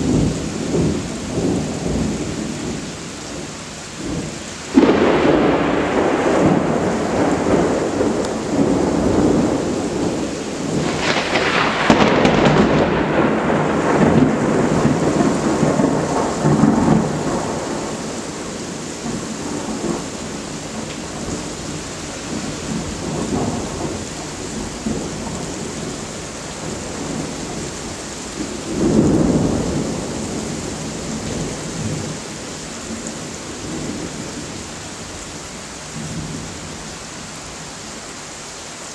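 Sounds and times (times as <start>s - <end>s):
thunder rumbling: 0.0s - 34.8s
heavy rain: 0.0s - 38.9s
sharp thunder crack: 4.7s - 21.3s.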